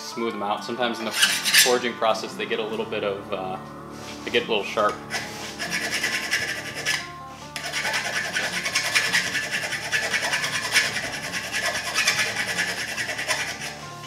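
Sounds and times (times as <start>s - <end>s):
file rasping on steel: 1.1s - 1.8s, 4.9s - 14.0s.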